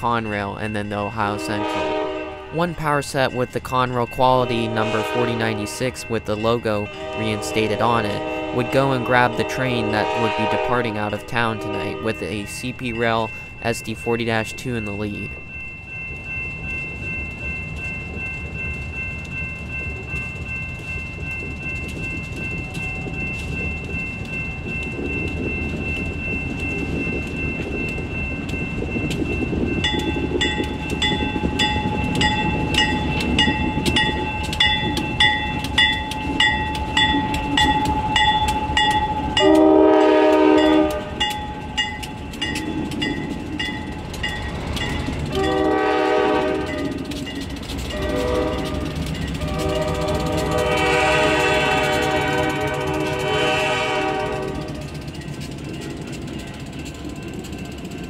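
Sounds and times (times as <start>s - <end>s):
diesel locomotive engines rumbling: 0.0s - 58.0s
locomotive bell ringing: 0.0s - 58.0s
locomotive horn blast: 1.3s - 2.6s, 4.4s - 5.8s, 6.8s - 12.0s, 39.4s - 41.2s, 45.3s - 46.9s, 47.9s - 54.9s.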